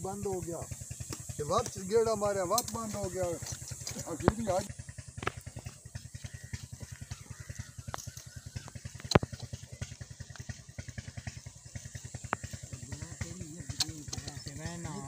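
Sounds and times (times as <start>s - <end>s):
diesel engine idling: 0.0s - 15.0s
sharp metallic click: 2.5s - 4.5s.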